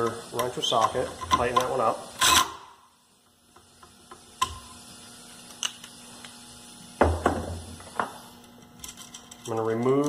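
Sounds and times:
drill set down on workbench: 0:07.0 - 0:08.2.

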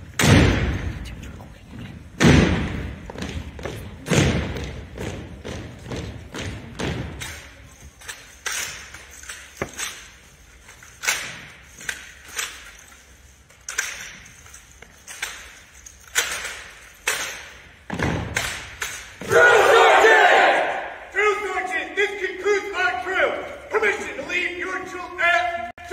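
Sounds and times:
rifle handling slaps: 0:15.1 - 0:19.5.

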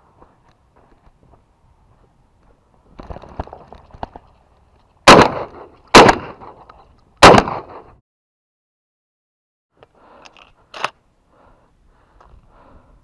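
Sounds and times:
shotgun shots with echo: 0:05.1 - 0:06.5, 0:07.2 - 0:07.9.

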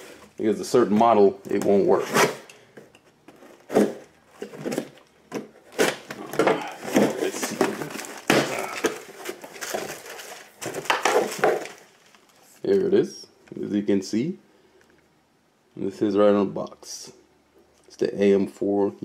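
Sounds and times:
packing tape tearing: 0:05.6 - 0:11.9.

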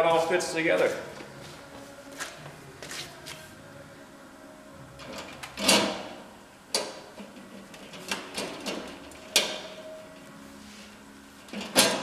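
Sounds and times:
metal clunks and clacks: 0:11.5 - 0:12.0.

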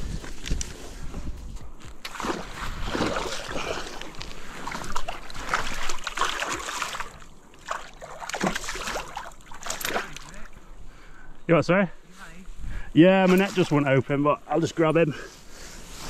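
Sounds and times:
fish thrashing and splashing: 0:02.0 - 0:10.5.

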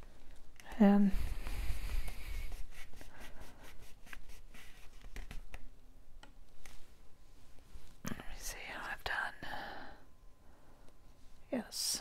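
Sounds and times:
fingertips rubbing cardstock: 0:01.9 - 0:05.4.

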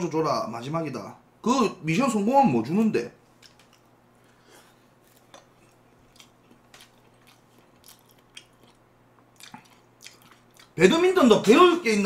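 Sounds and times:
faint chewing of noodles: 0:03.3 - 0:10.8
mouth clicks and smacks: 0:05.2 - 0:10.8.

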